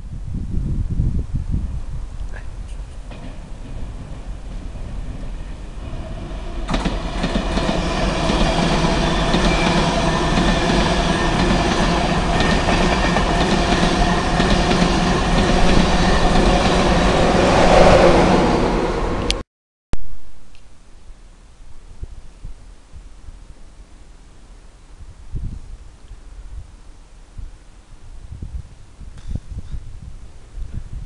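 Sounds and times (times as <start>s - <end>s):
high-speed train passing: 3.0s - 19.4s.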